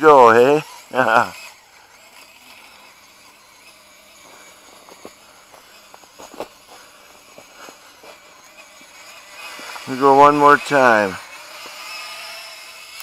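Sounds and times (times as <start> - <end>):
rc motor and gears whirring: 0.0 - 13.0
soft clicks and crunches in snow: 2.5 - 10.0.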